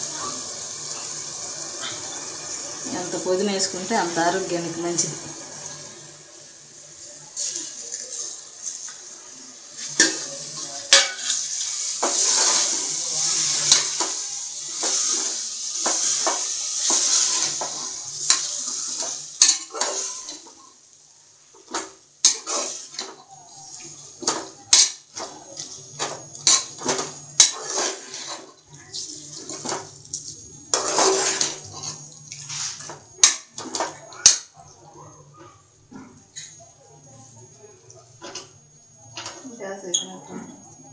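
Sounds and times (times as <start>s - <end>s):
sizzling hiss: 0.0s - 34.8s
ladle scraping metal pot: 22.2s - 23.1s, 26.4s - 28.6s, 30.7s - 33.0s.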